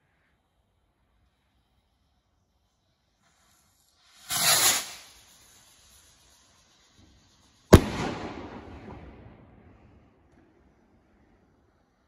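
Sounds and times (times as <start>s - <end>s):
firework rocket whoosh: 2.4s - 12.0s
firework bang: 4.2s - 5.1s, 7.7s - 9.6s.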